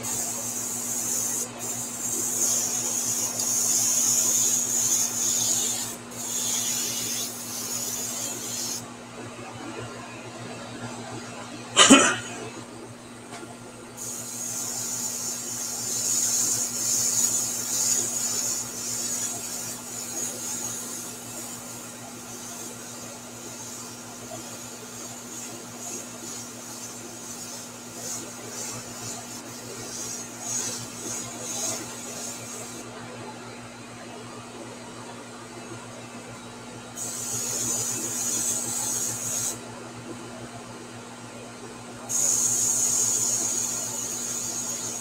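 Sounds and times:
airbrush spraying paint: 0.0 - 8.9, 14.0 - 32.9, 37.0 - 39.6, 42.1 - 45.0.

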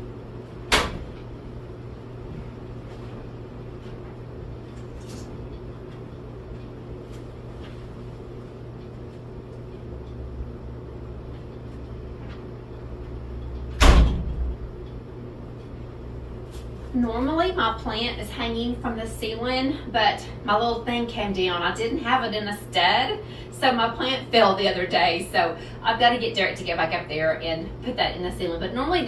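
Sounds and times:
steady low hum: 0.0 - 29.0
dryer door clacking open: 0.7 - 1.2, 13.8 - 14.5
dryer door thumping shut: 0.7 - 1.2, 13.8 - 14.5.

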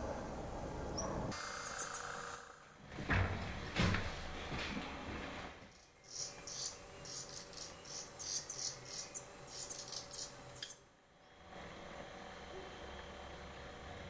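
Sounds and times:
nestlings begging calls: 5.7 - 10.8.

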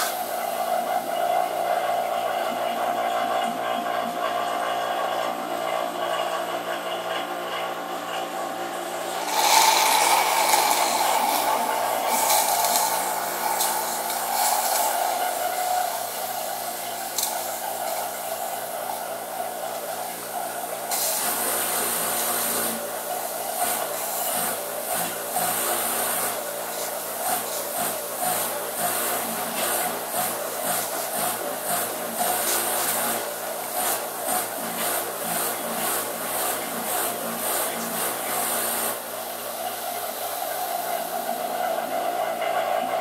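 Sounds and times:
refrigerator compressor humming: 0.0 - 43.0
rushing hiss: 9.1 - 19.0.

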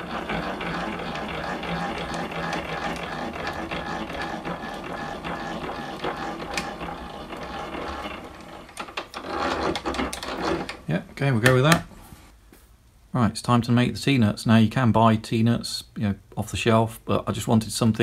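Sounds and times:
mechanical whirr of hand-wound screw: 0.0 - 10.8.

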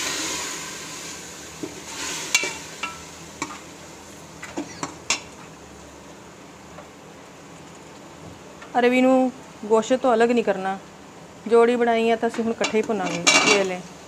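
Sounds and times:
chicken sizzling in oil: 0.0 - 4.3.

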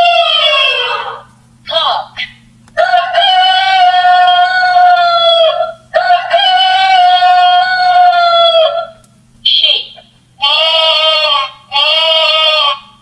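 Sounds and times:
recorded rooster crowing: 0.0 - 1.3, 2.8 - 9.0, 10.4 - 13.0.

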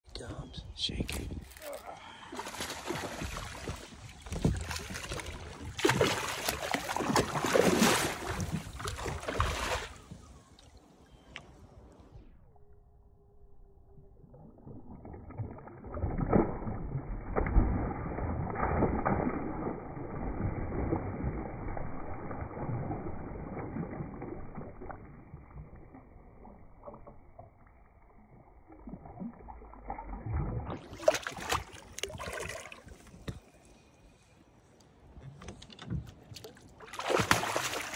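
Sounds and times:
fish thrashing and splashing water: 2.1 - 10.0, 14.5 - 25.9, 29.8 - 33.2, 36.5 - 37.9.

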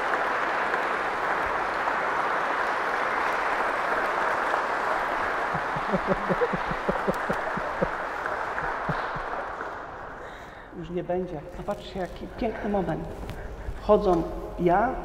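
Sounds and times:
sharp close claps: 0.0 - 10.3
congregation applauding: 0.0 - 10.8.

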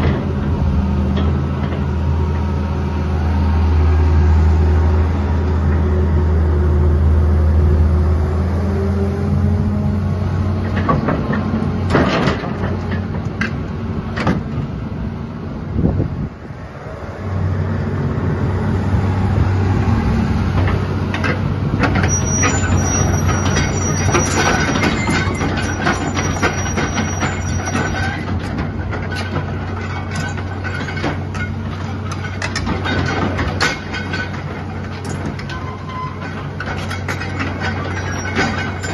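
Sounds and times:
metal tracks clanking and squealing: 0.0 - 2.4, 8.3 - 14.7, 19.8 - 38.9
excavator diesel engine running: 0.0 - 38.9.

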